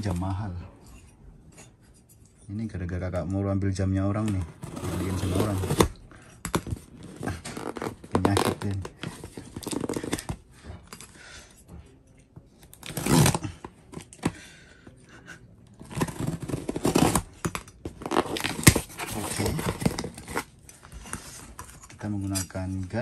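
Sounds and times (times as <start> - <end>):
tape and cardboard tearing: 4.3 - 10.4, 12.7 - 14.3, 15.8 - 20.5.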